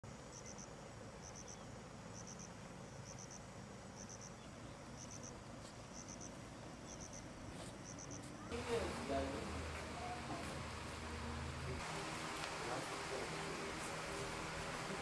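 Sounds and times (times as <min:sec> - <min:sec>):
faint outdoor background noise: 0:00.0 - 0:15.0
insect chirping in triplets: 0:00.2 - 0:08.3.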